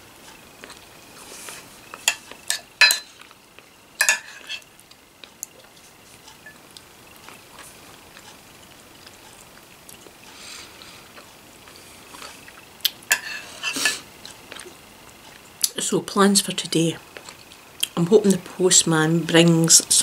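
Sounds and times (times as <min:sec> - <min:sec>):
spoon clinking against a bowl: 0:02.1 - 0:03.1, 0:04.0 - 0:04.6.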